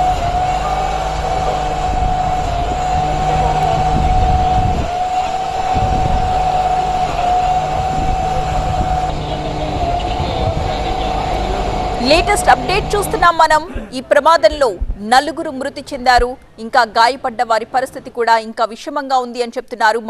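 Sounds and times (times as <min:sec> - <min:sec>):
low rumble: 0:00.0 - 0:13.6
high mechanical whine: 0:00.0 - 0:13.7.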